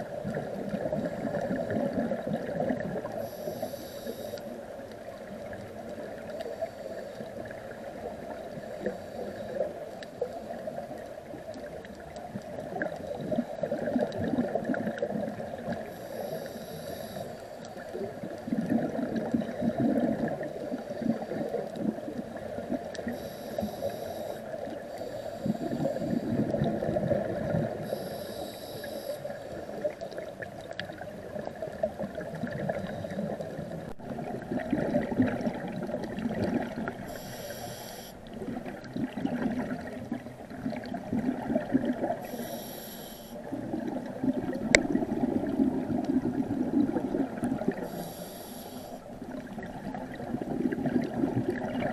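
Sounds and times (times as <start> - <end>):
hissing regulator inhalation: 3.2 - 4.5, 15.8 - 17.6, 23.1 - 26.3, 27.8 - 29.3, 37.1 - 38.2, 42.2 - 43.4, 47.8 - 49.0.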